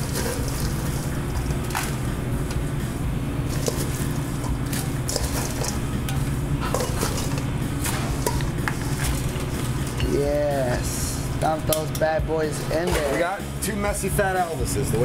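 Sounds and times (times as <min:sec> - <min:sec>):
fries sliding onto plates: 0:00.0 - 0:02.0, 0:03.5 - 0:05.8, 0:06.6 - 0:10.1
metal tongs scraping a steel bowl: 0:00.0 - 0:02.0, 0:03.5 - 0:10.1
low kitchen hum: 0:00.0 - 0:15.0.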